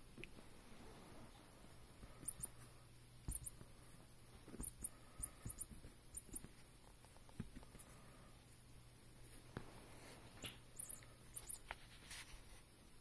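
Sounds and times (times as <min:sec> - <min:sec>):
toy mouse squeaking: 0:02.2 - 0:02.6, 0:03.3 - 0:03.6, 0:04.6 - 0:06.5, 0:10.4 - 0:11.7.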